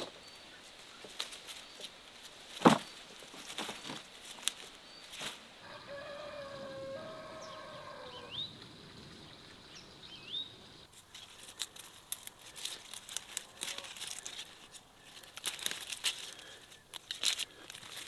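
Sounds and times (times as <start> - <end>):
plant leaves rustling and snapping: 0.0 - 5.5, 10.9 - 18.0
rooster crowing: 5.6 - 8.4.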